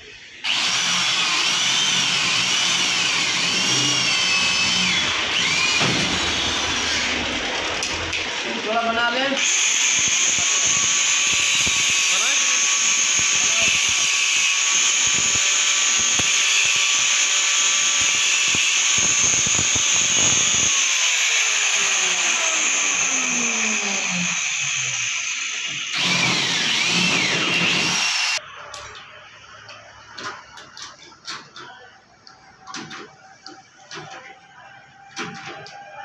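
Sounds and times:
motor winding down whine: 0.5s - 8.6s, 9.4s - 28.4s
angle grinder running: 0.5s - 28.4s.

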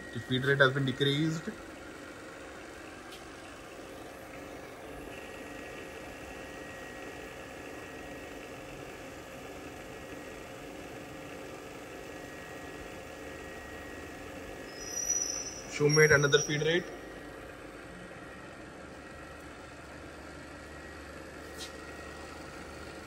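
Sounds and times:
milling machine mechanical hum: 0.0s - 23.0s
faint high whine: 14.6s - 17.2s.

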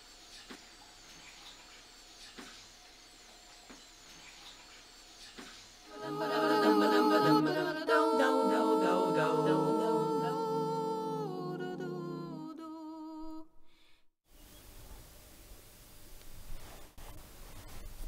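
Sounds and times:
voices singing in harmony: 5.9s - 13.5s.

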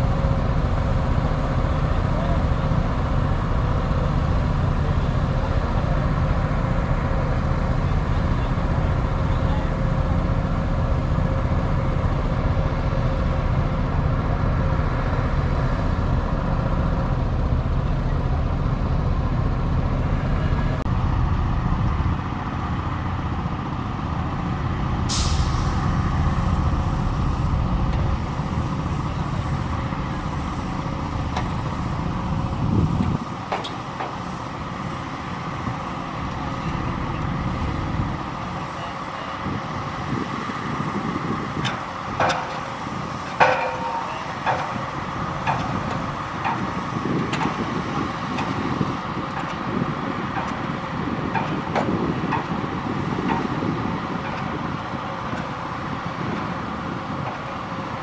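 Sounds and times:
bulldozer diesel engine drone: 0.0s - 58.0s
short sharp hiss: 25.1s - 27.6s.

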